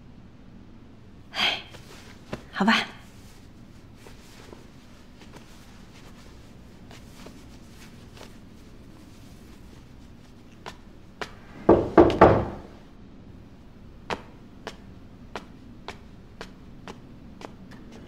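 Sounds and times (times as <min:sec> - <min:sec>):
knocks on steel door: 0:11.6 - 0:12.8.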